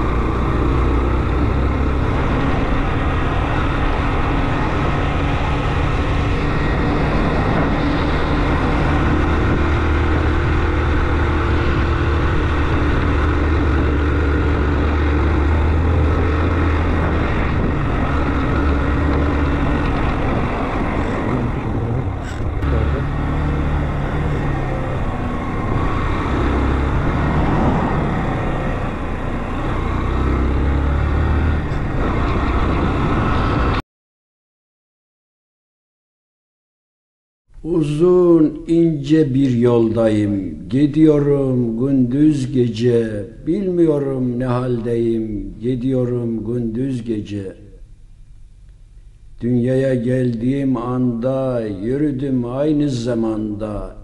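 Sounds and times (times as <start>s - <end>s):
motorcycle engine drone: 0.0s - 33.8s
road and wind noise: 0.0s - 33.8s, 37.5s - 54.0s.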